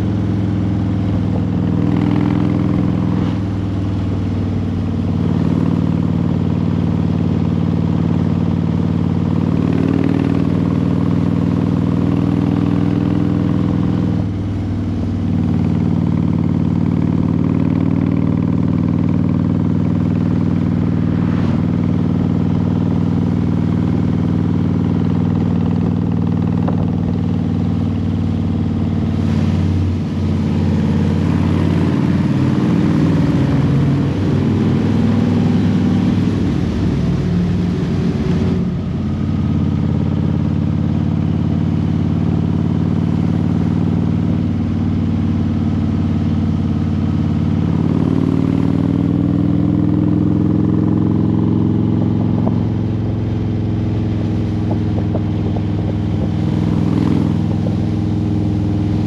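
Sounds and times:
vehicle engine running: 0.0s - 59.0s
rushing noise: 20.8s - 22.1s.

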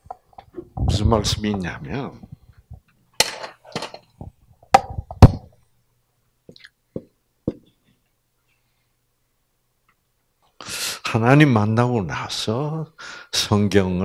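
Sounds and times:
marker tapping on whiteboard: 7.0s - 7.7s.

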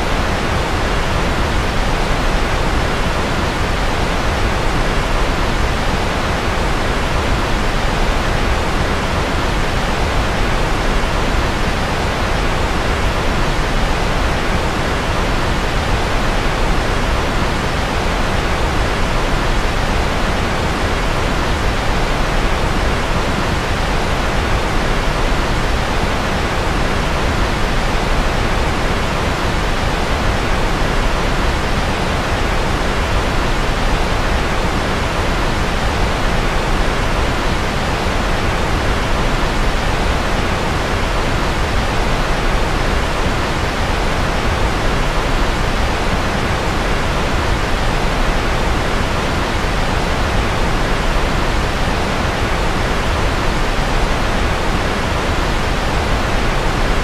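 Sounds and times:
white noise hiss: 0.0s - 57.0s.

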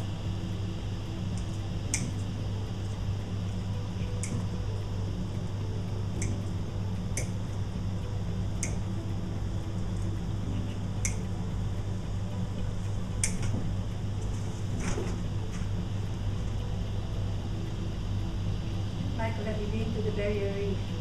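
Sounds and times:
steady low hum: 0.0s - 21.0s
clicks and snips of cutting stems: 1.4s - 2.3s, 4.2s - 4.5s, 13.2s - 15.7s.

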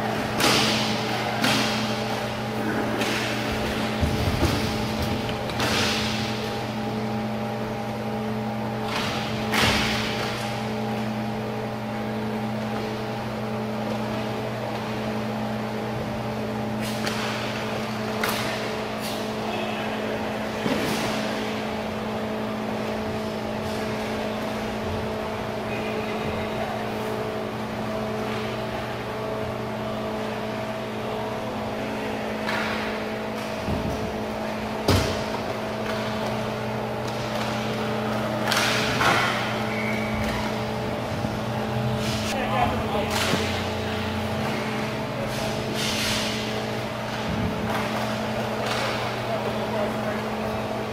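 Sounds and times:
steady mechanical hum: 0.0s - 50.9s
hockey sticks and puck knocking: 2.9s - 6.4s, 16.9s - 18.7s, 34.8s - 39.6s, 47.1s - 49.2s.

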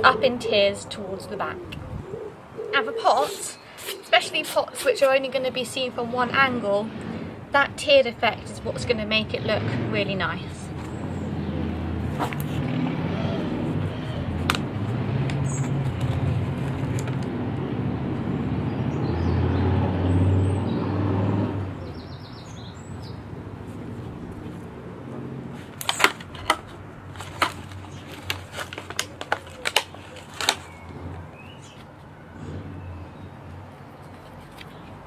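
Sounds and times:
vehicle engine humming: 8.6s - 35.0s.

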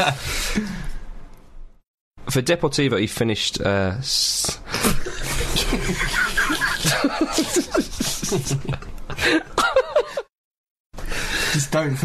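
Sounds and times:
men laughing: 4.7s - 10.3s.

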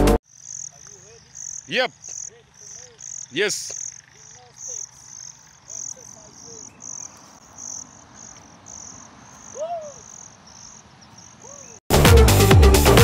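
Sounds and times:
insects chirping: 0.2s - 11.8s
electronic dance music: 11.9s - 13.0s.

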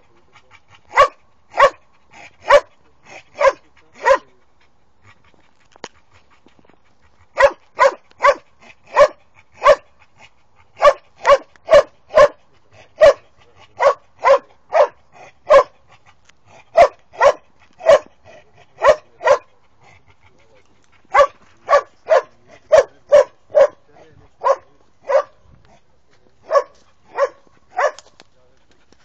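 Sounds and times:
dog barking: 0.9s - 1.8s, 2.4s - 2.7s, 3.4s - 4.3s, 7.4s - 9.9s, 10.8s - 12.4s, 13.0s - 13.2s, 13.8s - 15.8s, 16.7s - 18.1s, 18.8s - 19.5s, 21.1s - 23.8s, 24.4s - 25.4s, 26.4s - 28.1s.

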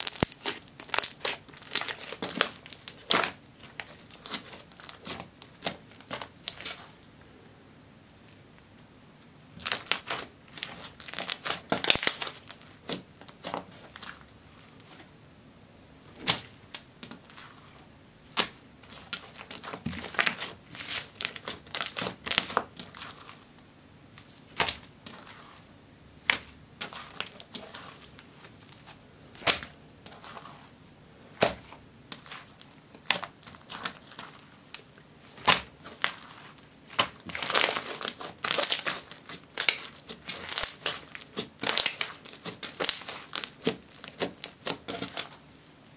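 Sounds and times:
slime sticky pops and crackles: 0.0s - 3.4s.

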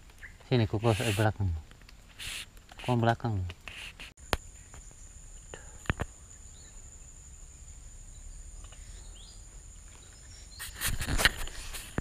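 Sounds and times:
close rustling and scraping: 0.4s - 4.9s, 9.9s - 12.0s.

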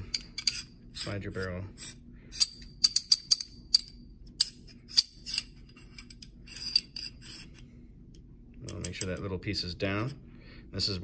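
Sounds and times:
metallic clicks and scrapes: 0.0s - 7.6s.

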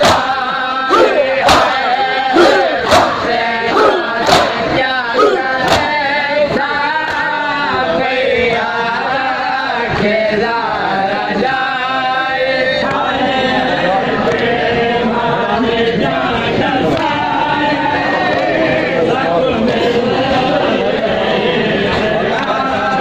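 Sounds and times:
men chanting in unison: 0.0s - 23.0s
hands slapping chests: 3.8s - 4.6s, 5.2s - 6.0s.

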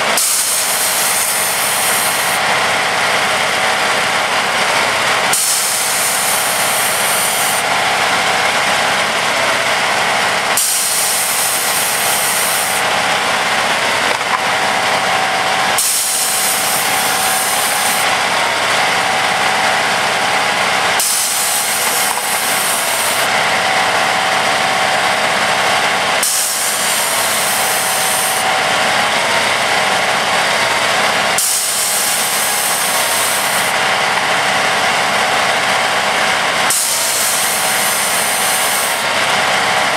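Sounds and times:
high hydraulic hiss: 0.0s - 2.4s, 5.3s - 7.7s, 10.5s - 12.9s, 15.8s - 18.1s, 21.0s - 23.3s, 26.2s - 28.5s, 31.4s - 33.8s, 36.7s - 39.1s
track machine engine whine: 0.0s - 39.9s.

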